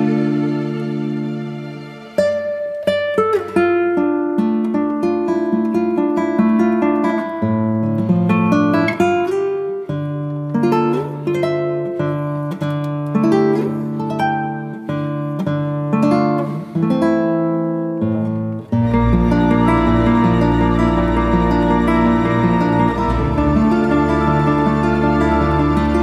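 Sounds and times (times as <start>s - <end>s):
acoustic guitar music: 0.0s - 26.0s.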